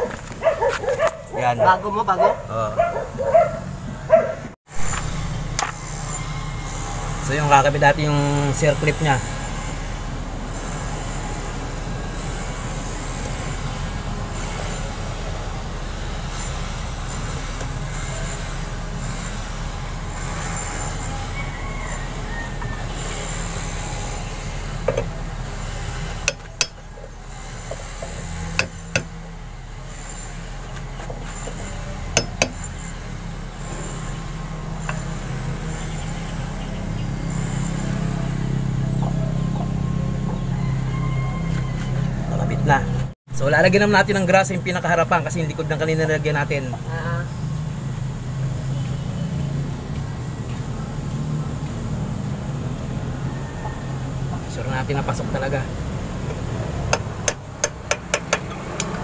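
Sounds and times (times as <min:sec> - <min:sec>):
hammer tapping on steel: 0:32.2 - 0:32.6, 0:56.3 - 0:59.0.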